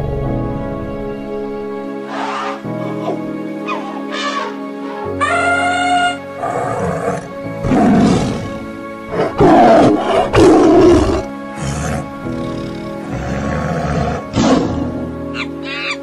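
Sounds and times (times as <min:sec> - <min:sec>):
background music: 0:00.0 - 0:16.0
tiger roaring: 0:05.2 - 0:15.0.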